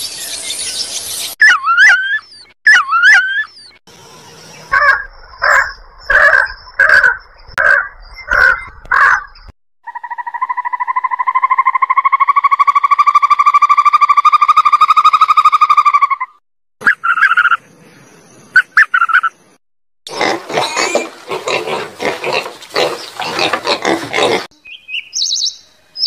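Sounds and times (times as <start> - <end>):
warbling animal calls: 4.6 - 17.6
animal calls with low thump: 4.7 - 9.4.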